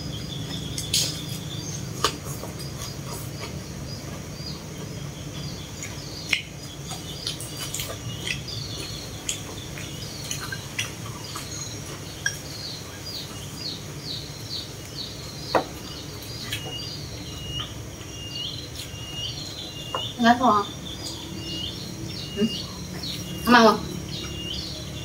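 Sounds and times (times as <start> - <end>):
bird chirping: 0.0 - 25.0.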